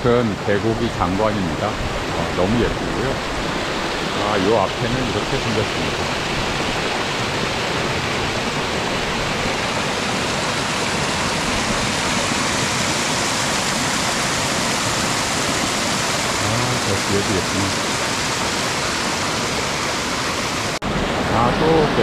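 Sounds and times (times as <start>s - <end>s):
stream water rushing: 0.0s - 22.0s.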